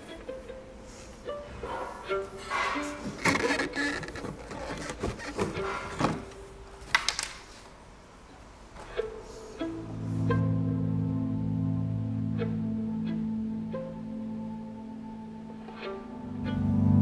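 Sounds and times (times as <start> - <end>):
knocks and clicks of handling: 3.0 - 7.4.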